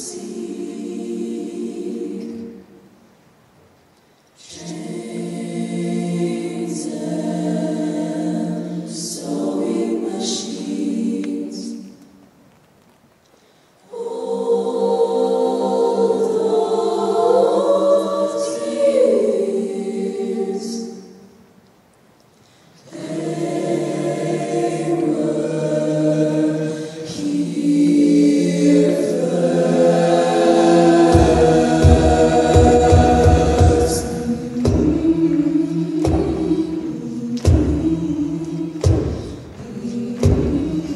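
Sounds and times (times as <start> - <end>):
women singing in harmony: 0.0 - 2.9, 4.4 - 12.0, 13.8 - 21.4, 22.8 - 40.9
vocal percussion beat: 29.8 - 40.9.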